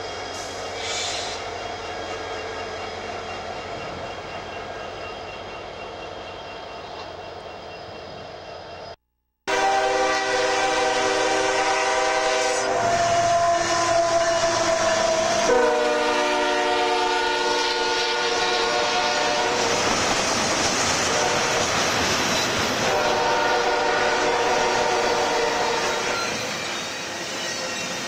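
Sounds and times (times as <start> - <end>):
train rumble: 0.0 - 28.0
train air horn blasts: 9.5 - 19.9, 21.0 - 21.9, 22.7 - 26.5
train wheels clattering: 19.5 - 23.9.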